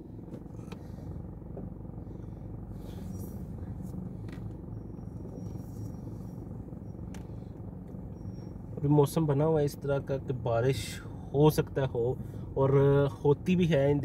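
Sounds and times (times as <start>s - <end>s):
road noise: 0.0s - 13.9s
car engine hum: 0.0s - 14.0s.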